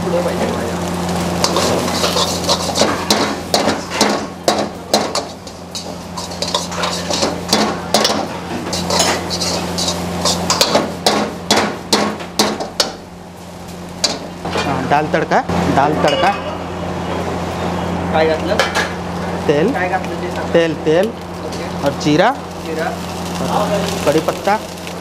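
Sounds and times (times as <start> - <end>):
steady low hum: 0.0 - 18.2.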